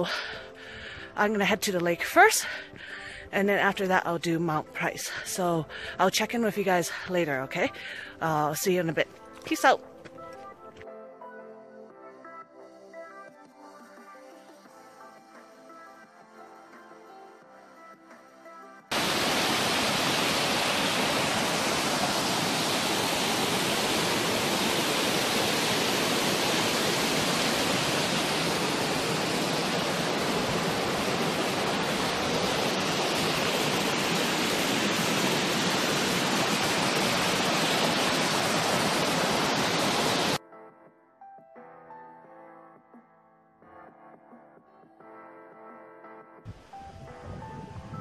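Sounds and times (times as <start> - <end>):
creek water rushing: 18.9 - 40.4.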